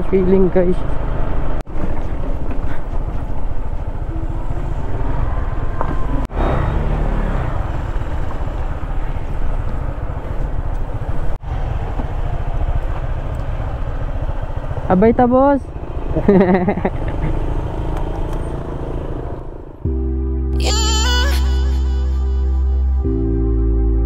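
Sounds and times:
scooter engine running: 6.7 - 19.8.

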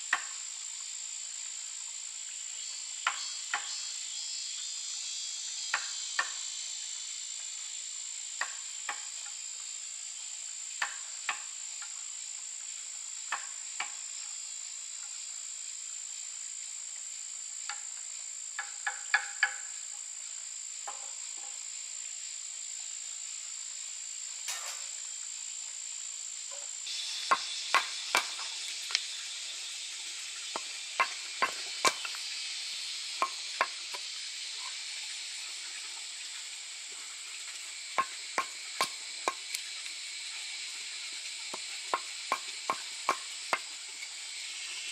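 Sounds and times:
high-pitched insect chorus: 0.0 - 44.9
tool knocking on wood: 27.3 - 28.5, 30.6 - 32.2, 33.2 - 34.0, 38.0 - 39.4, 41.5 - 43.7.

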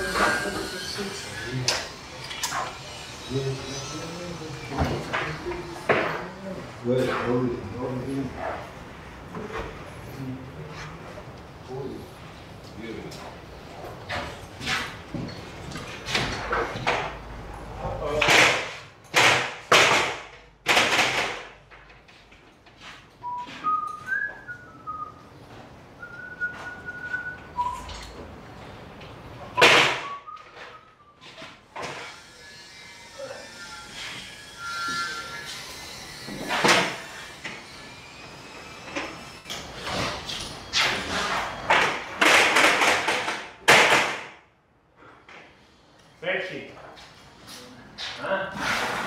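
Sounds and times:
loud knocks and thuds: 18.2 - 21.5
person whistling short high notes: 34.6 - 35.5
short scraping rush: 48.5 - 49.0.

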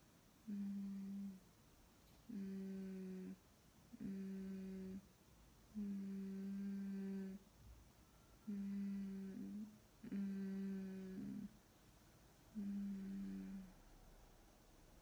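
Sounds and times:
woman humming: 0.5 - 1.4, 2.3 - 5.0, 5.7 - 7.4, 8.4 - 11.6, 12.5 - 13.8.

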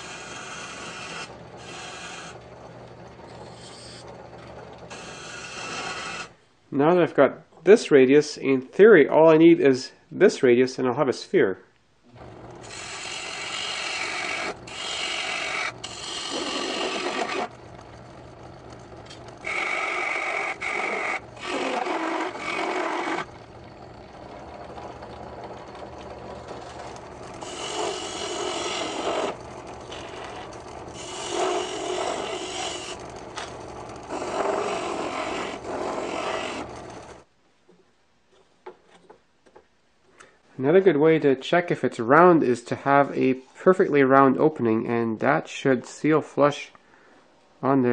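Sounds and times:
chisel scraping spinning wood: 0.0 - 6.4, 12.2 - 37.3
lathe motor hum: 0.0 - 6.4, 12.2 - 37.3.

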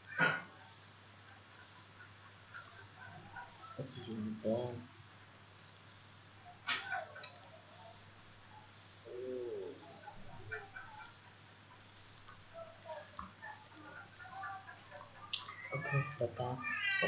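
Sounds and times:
faint chirps: 0.0 - 4.8, 6.4 - 17.0
low cooing call: 9.0 - 11.1
sharp clicks: 11.0 - 14.4, 15.2 - 15.6.

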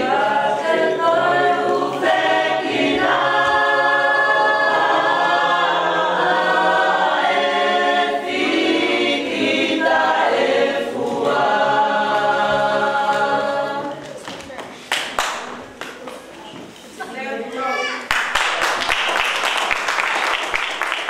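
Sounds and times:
women's choir singing a hymn: 0.0 - 14.2.

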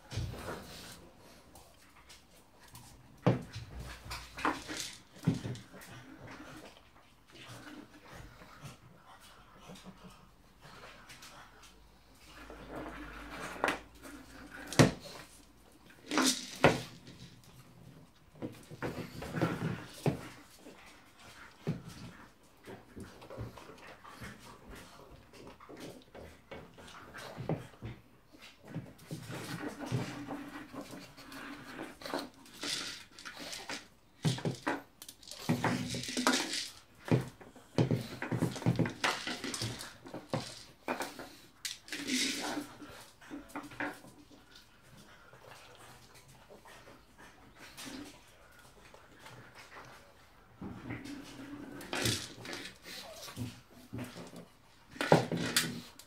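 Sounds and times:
plastic ball clattering on wood and tile: 2.6 - 6.6, 12.7 - 20.4, 28.9 - 44.3, 50.9 - 56.0.

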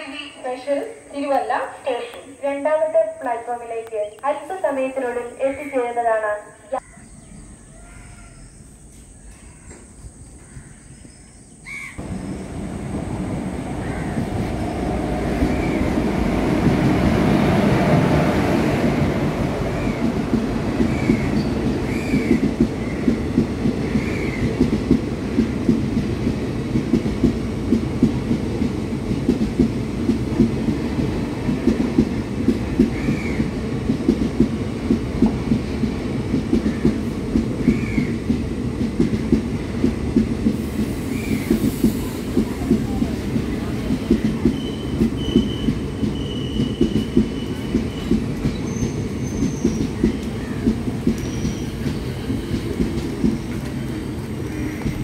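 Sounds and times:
train wheels clicking over rail joints: 18.4 - 55.0
high wheel squeals: 44.5 - 49.9, 51.2 - 52.8.

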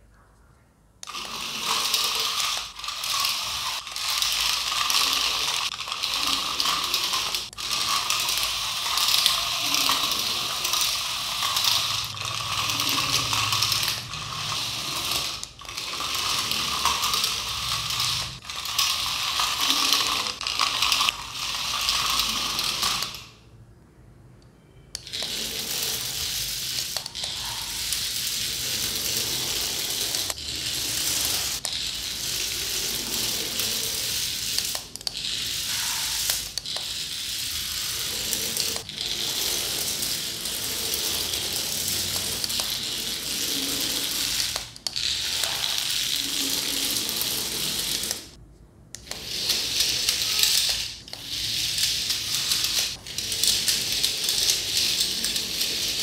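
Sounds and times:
toy geared motors running: 1.0 - 23.4, 24.9 - 56.0.

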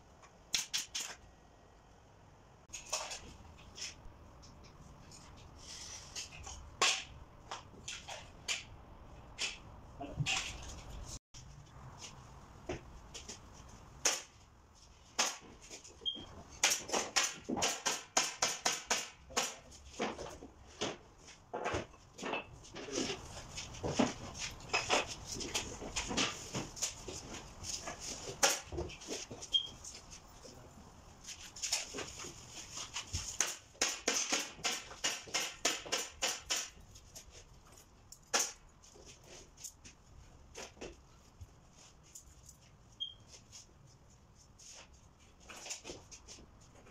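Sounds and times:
nail gun firing into shingles: 16.6 - 19.6, 33.4 - 36.8.

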